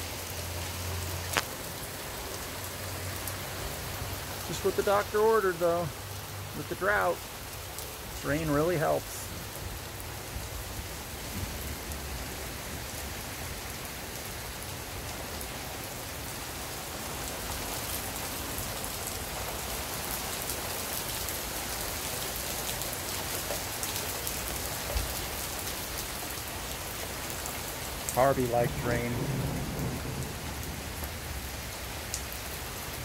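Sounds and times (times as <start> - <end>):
heavy rain falling: 0.0 - 33.0.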